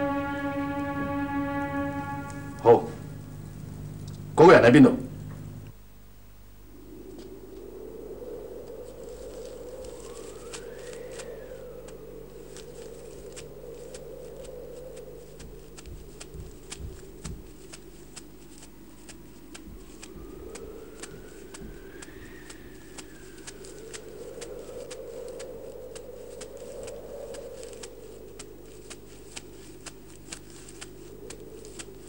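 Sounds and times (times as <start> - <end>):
crackling clicks: 0.0 - 4.4, 5.1 - 5.8, 8.6 - 32.0
whistling wind gust: 0.0 - 4.6, 6.6 - 17.6, 18.7 - 28.9
wind rushing: 19.6 - 27.6.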